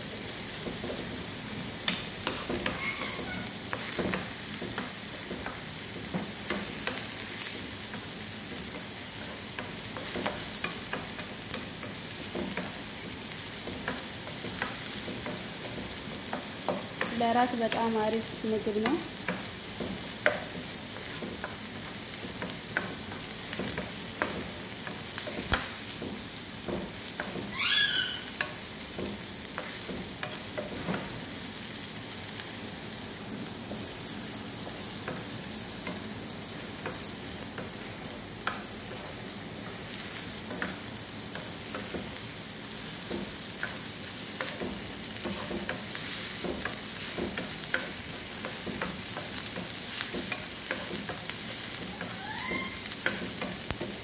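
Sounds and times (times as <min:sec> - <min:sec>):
onions sizzling in oil: 0:00.0 - 0:54.0
wooden spoon scraping a pan: 0:01.8 - 0:27.6, 0:42.9 - 0:54.0
brief rising squeak: 0:02.7 - 0:03.5, 0:27.5 - 0:28.3, 0:51.9 - 0:52.9.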